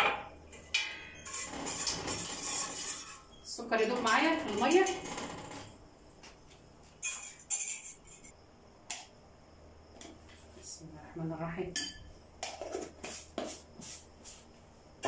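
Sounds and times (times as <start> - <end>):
metal spoon clinking on glass: 11.8 - 12.1.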